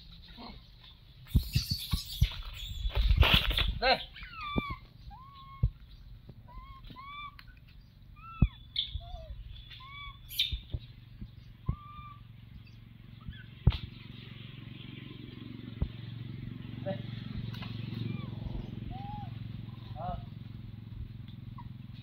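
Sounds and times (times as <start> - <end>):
whistle-like animal calls: 8.2 - 10.6, 11.7 - 12.2, 18.9 - 19.4.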